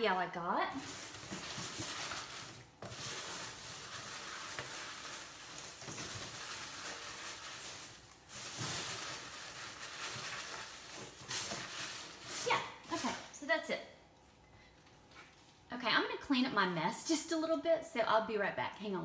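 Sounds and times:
plastic packaging and paper crinkling: 0.7 - 13.4.

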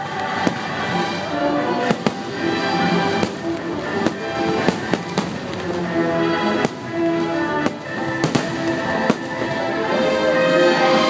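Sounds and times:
fireworks show music: 0.0 - 11.0
firework shells bursting: 1.9 - 9.7.

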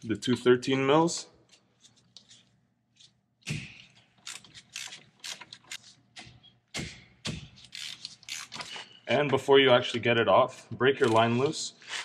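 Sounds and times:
ratchet wrench clicking: 4.2 - 5.8, 7.6 - 8.7.

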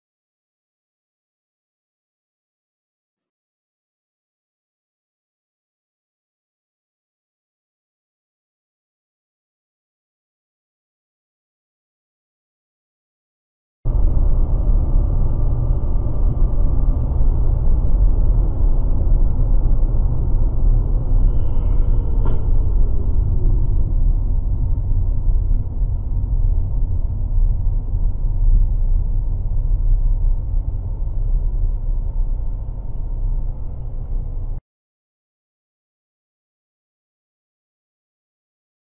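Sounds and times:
muffled car engine and tyres rumble: 13.9 - 34.6.

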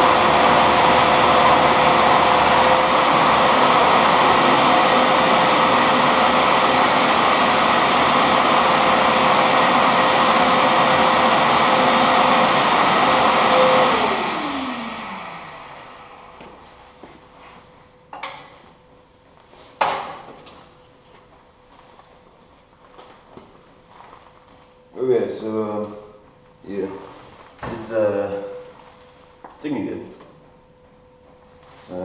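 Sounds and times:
lathe motor whining: 0.0 - 16.8.

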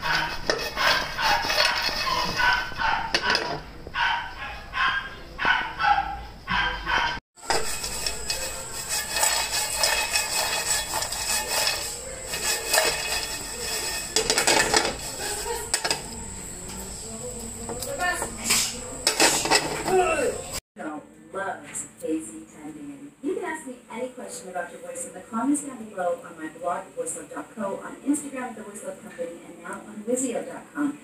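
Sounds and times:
nuts scraping in a frying pan: 0.0 - 3.6, 7.4 - 16.6, 17.4 - 20.5.

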